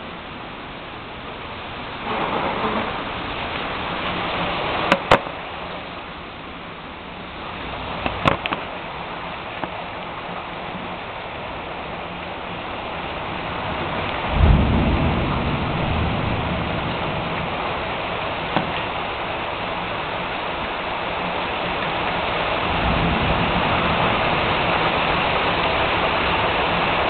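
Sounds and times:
steady rain: 0:00.0 - 0:27.0
thunder rumble: 0:01.2 - 0:05.4, 0:09.7 - 0:27.0.

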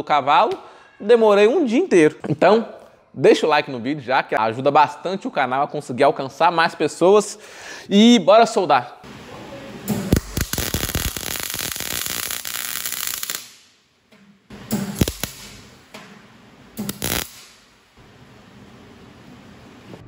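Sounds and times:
welder arc crackling: 0:09.1 - 0:13.8, 0:14.5 - 0:18.2.

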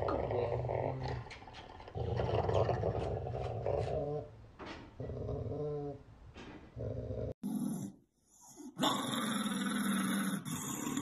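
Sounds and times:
dog growling: 0:00.0 - 0:04.3, 0:05.0 - 0:06.0.

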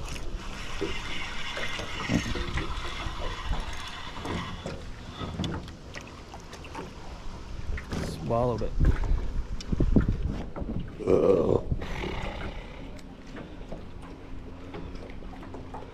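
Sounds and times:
waves lapping against boat hull: 0:00.0 - 0:15.9
light knocks against boat: 0:04.2 - 0:06.9, 0:07.7 - 0:11.0
wind on microphone: 0:08.6 - 0:12.4.

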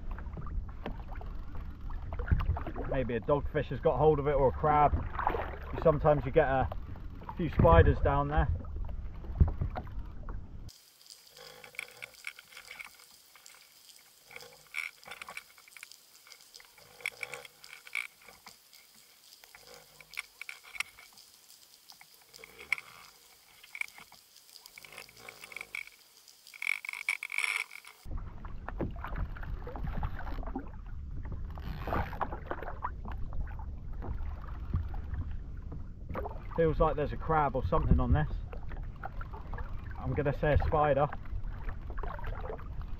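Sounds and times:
wind and water noise: 0:00.0 - 0:42.9
underwater clicks and knocks: 0:08.6 - 0:10.4, 0:14.3 - 0:18.8
faint underwater hiss: 0:10.7 - 0:28.1.

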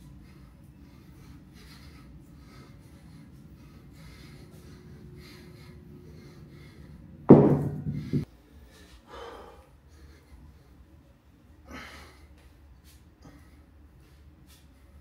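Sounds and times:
person breathing heavily: 0:00.0 - 0:10.9, 0:11.6 - 0:15.0
kettlebell thud on concrete: 0:07.3 - 0:08.2.

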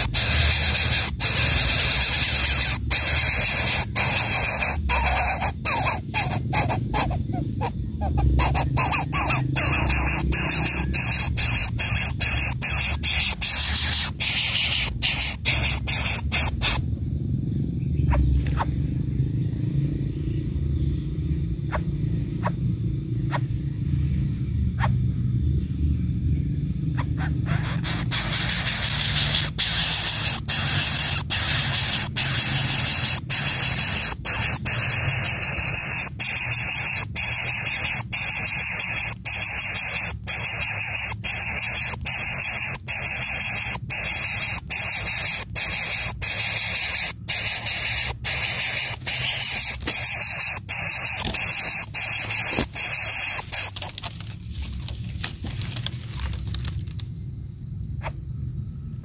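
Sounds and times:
bird nestling hissing: 0:00.0 - 0:16.8, 0:27.4 - 0:54.1.

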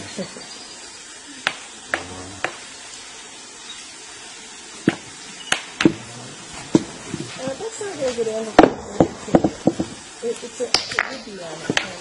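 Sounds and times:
faint hiss: 0:00.0 - 0:12.0
knocks on wooden log: 0:04.8 - 0:06.0, 0:08.6 - 0:10.0.

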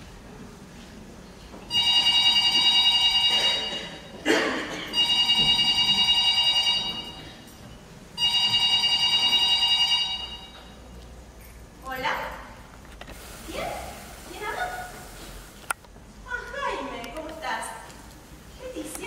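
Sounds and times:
electric bell ringing: 0:01.7 - 0:04.2, 0:04.9 - 0:07.6, 0:08.2 - 0:10.8.

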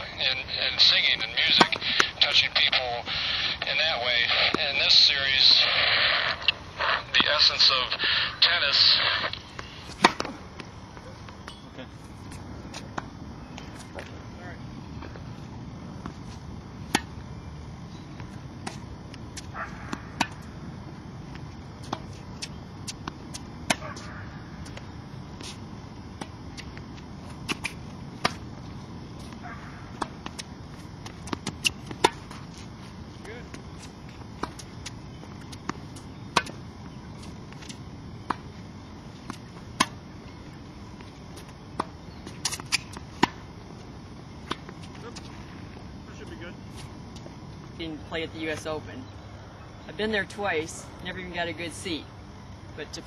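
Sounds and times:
tennis rackets striking balls: 0:00.7 - 0:02.4, 0:09.3 - 0:11.7, 0:16.8 - 0:17.3, 0:18.0 - 0:20.6, 0:21.3 - 0:45.7
tennis ball bounces: 0:00.8 - 0:02.2, 0:09.6 - 0:11.7, 0:16.8 - 0:17.2, 0:18.1 - 0:20.6, 0:21.3 - 0:24.8, 0:26.2 - 0:32.6, 0:33.2 - 0:38.6, 0:39.2 - 0:43.6.

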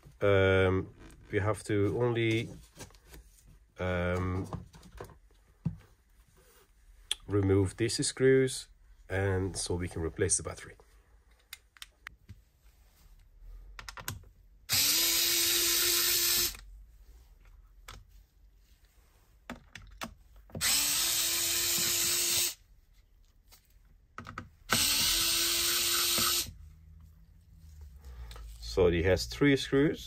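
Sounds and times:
electric screwdriver motor whine: 0:14.7 - 0:16.6, 0:20.6 - 0:22.6, 0:24.7 - 0:26.5.

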